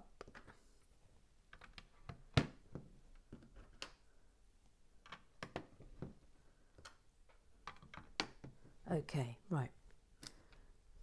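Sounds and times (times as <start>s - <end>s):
plastic bricks clicking: 6.7s - 8.5s.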